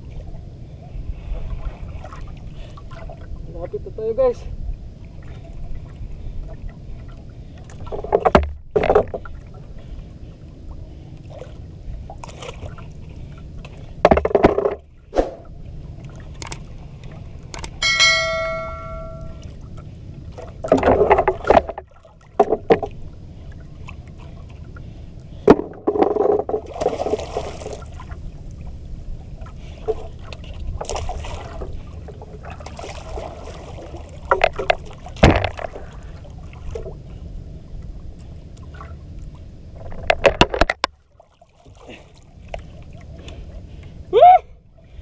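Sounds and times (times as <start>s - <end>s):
water slapping against boat hull: 7.7s - 9.3s, 20.3s - 23.0s, 25.4s - 28.2s, 29.8s - 37.0s
short ringing tone: 17.8s - 19.5s.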